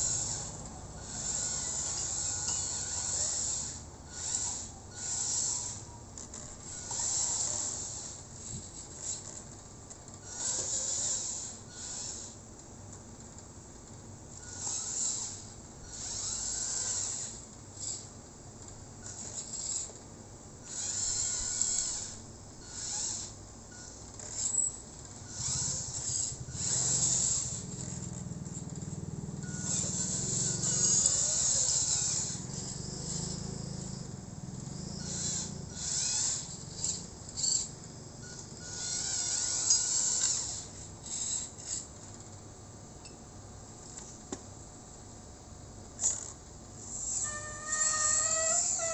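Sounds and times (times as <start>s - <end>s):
electric motor whirring: 0.0s - 5.9s, 6.6s - 9.3s, 10.2s - 12.4s, 14.4s - 18.1s, 20.6s - 24.7s, 25.3s - 41.9s, 46.0s - 48.9s
steady low hum: 0.0s - 48.9s.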